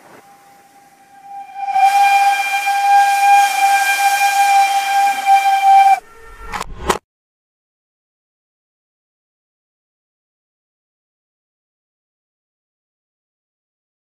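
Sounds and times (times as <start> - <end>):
loud steam-like hiss: 0.0 - 6.0
high whistle: 0.0 - 6.6.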